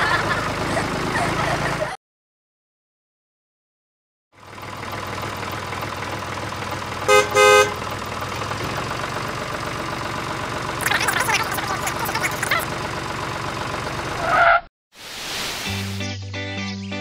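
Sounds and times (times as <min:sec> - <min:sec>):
horn toots: 0:07.1 - 0:07.9
toy tractor motor running: 0:10.8 - 0:12.7.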